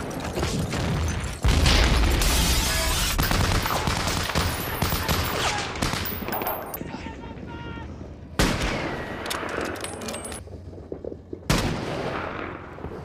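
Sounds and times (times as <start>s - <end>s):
rifle and machine-gun fire: 1.0s - 6.6s.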